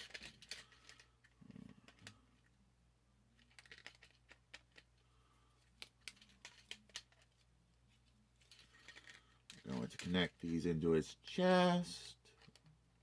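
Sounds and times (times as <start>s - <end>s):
plastic parts clicking: 0.0s - 2.2s, 3.4s - 5.0s, 5.7s - 7.4s, 12.3s - 12.8s.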